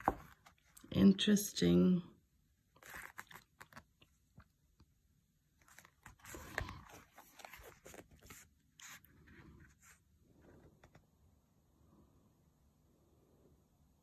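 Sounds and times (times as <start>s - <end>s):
book pages rustling: 0.0s - 0.9s, 2.8s - 4.5s, 5.6s - 11.0s.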